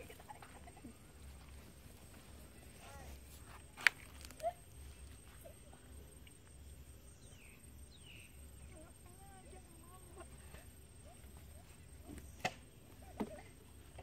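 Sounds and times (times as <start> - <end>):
faint outdoor background: 0.0 - 14.0
faint bird chirps: 6.5 - 9.6.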